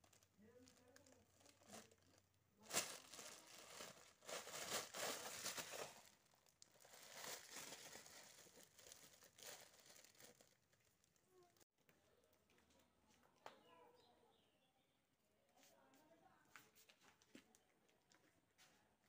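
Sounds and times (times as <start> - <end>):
plastic bottle crinkling: 0.0 - 11.2.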